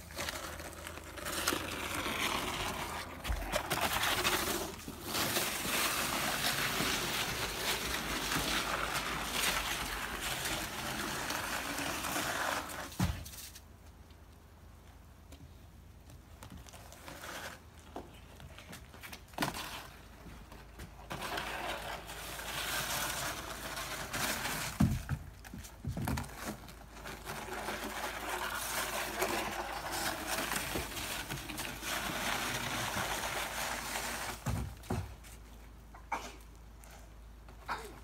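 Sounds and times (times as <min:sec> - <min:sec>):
shovel scraping slush on wood: 0:00.0 - 0:13.0, 0:21.0 - 0:25.0, 0:26.4 - 0:34.6.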